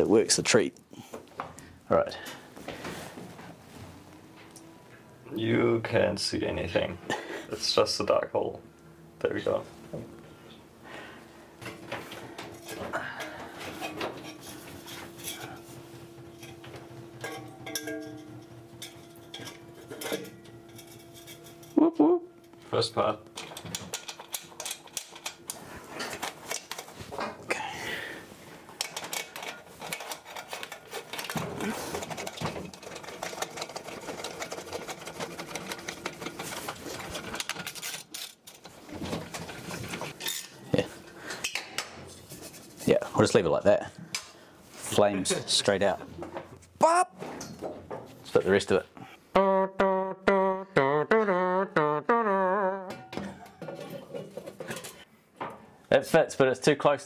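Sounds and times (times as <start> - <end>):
clicking and clatter of metal tools: 23.4 - 26.9, 28.8 - 38.7.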